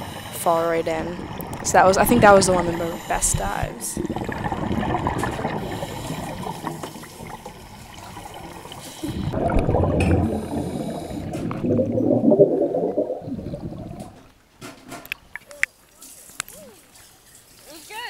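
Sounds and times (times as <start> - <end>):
underwater bubbles gurgling: 0.0 - 14.4.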